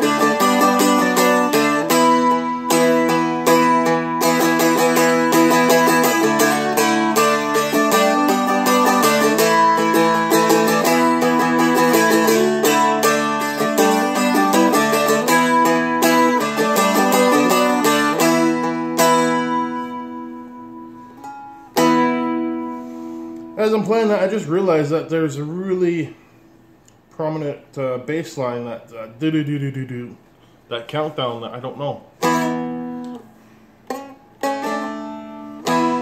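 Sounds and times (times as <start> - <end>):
acoustic guitar strummed chords: 0.0 - 24.0, 32.1 - 36.0.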